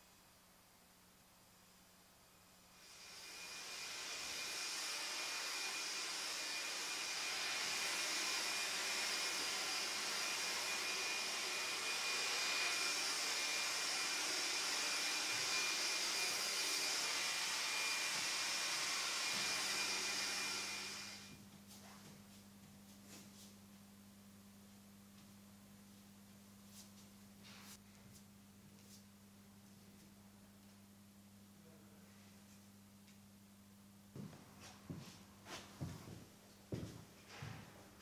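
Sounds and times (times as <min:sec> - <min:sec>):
electric blower whining: 0:02.8 - 0:21.4.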